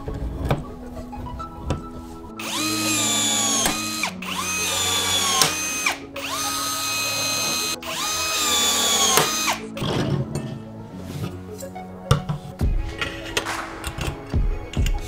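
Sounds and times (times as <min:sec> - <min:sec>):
rivet gun motor whine: 0:02.4 - 0:09.9.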